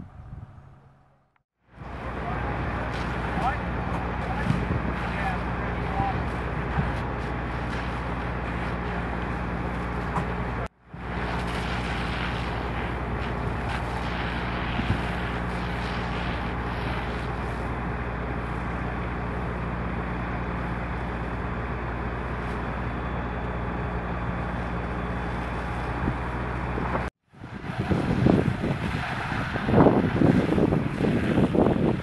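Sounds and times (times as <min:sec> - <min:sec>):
low engine hum: 0:00.0 - 0:32.0
rushing hose stream: 0:02.0 - 0:10.1, 0:11.0 - 0:19.5, 0:27.4 - 0:32.0.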